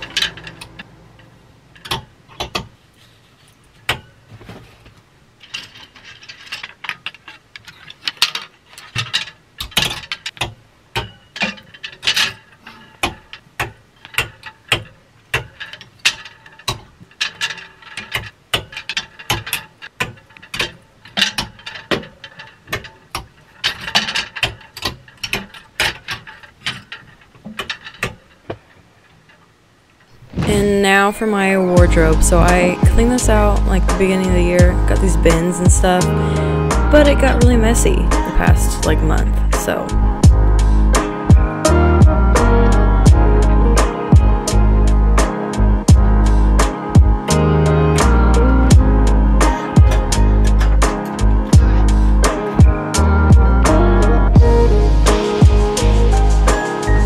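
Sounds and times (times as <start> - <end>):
hangers scraping along wire rod: 0.0 - 29.4, 30.0 - 57.0
wooden hangers clacking: 0.0 - 42.8, 48.0 - 53.0.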